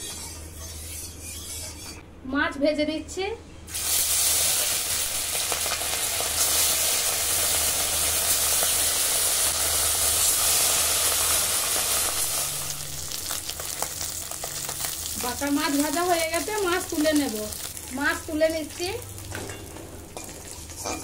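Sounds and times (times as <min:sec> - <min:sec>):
metal spatula scraping pan: 0:00.0 - 0:02.0
fish sizzling in oil: 0:03.7 - 0:19.4.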